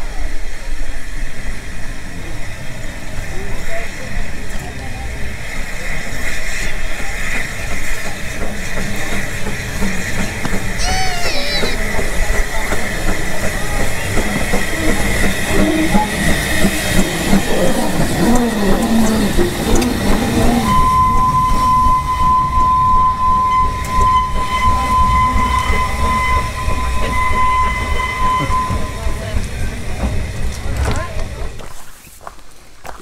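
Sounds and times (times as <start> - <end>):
steam locomotives moving slowly: 0.0 - 33.0
rattling wheels: 2.4 - 32.0
steady high-pitched tone: 10.8 - 11.8, 20.5 - 29.4.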